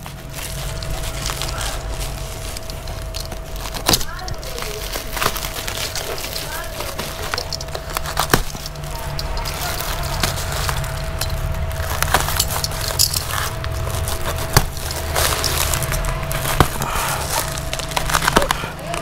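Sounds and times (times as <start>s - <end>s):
plastic sack rustling: 0.0s - 19.0s
seam snapping: 0.0s - 19.0s.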